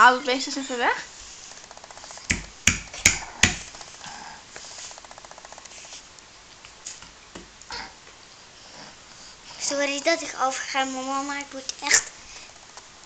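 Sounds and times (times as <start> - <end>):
faint fast ticking: 1.5 - 6.3
toy mallet knocking on wood: 2.3 - 3.6.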